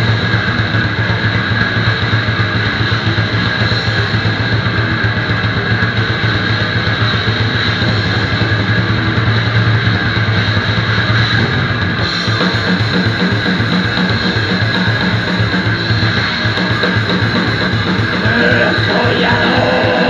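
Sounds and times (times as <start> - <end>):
distorted electric guitar: 0.0 - 20.0
drum kit: 0.0 - 20.0.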